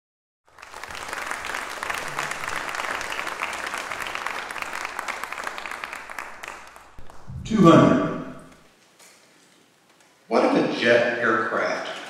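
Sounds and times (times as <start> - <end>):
audience applauding: 0.5 - 7.8.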